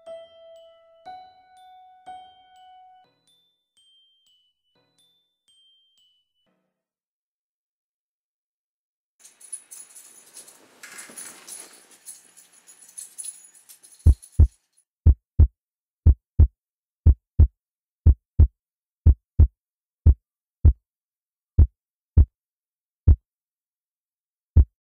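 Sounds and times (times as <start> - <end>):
heartbeat thumps: 15.0 - 20.8, 24.6 - 24.8.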